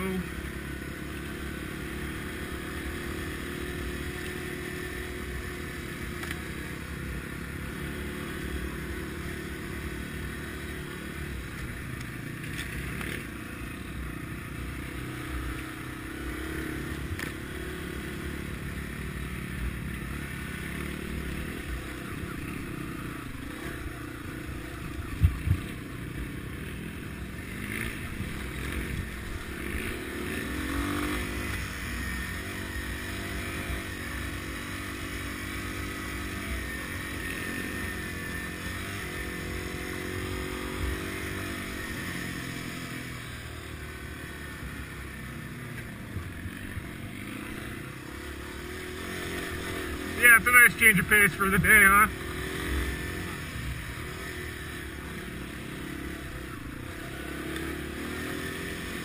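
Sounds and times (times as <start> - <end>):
motorcycle engine running: 0.0 - 59.0
wind: 0.0 - 59.0.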